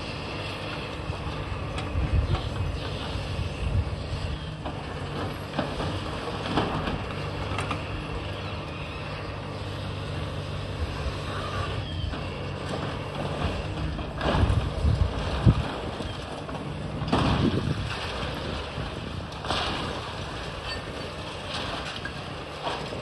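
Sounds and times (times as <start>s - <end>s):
excavator diesel engine running: 0.0s - 23.0s.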